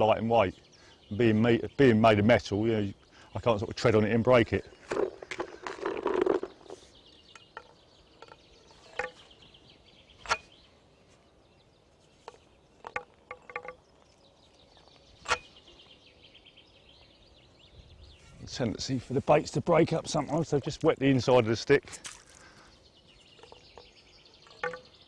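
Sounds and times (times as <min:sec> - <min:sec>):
faint birdsong: 0:00.0 - 0:25.0
rustle: 0:04.7 - 0:25.0
sharp clicks and knocks: 0:12.2 - 0:13.9.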